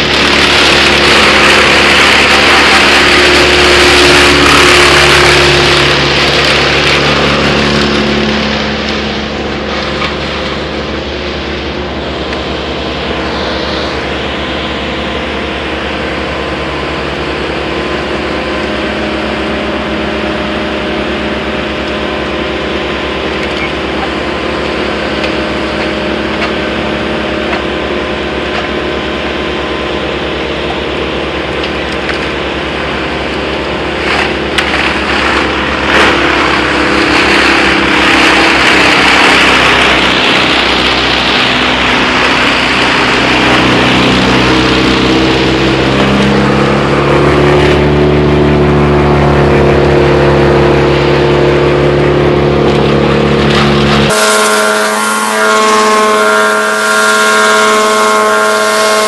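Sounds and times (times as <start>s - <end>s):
branches knocking: 0.0s - 10.6s, 34.0s - 45.0s
branches crackling and grinding: 0.0s - 54.8s
brush chipper engine running: 0.0s - 59.0s.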